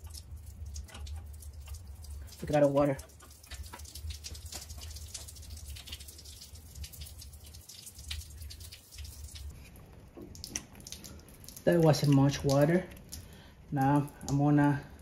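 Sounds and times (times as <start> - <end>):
low steady hum: 0.0 - 15.0
water dripping and trickling: 0.0 - 15.0.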